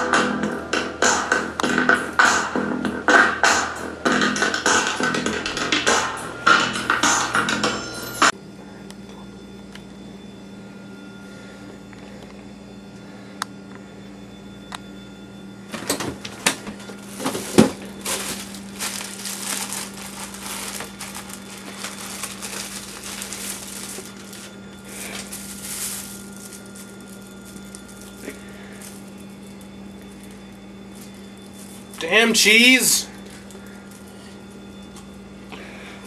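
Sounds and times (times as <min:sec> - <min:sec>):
steady low hum: 0:00.0 - 0:36.0
plastic packaging crinkling: 0:16.8 - 0:32.1.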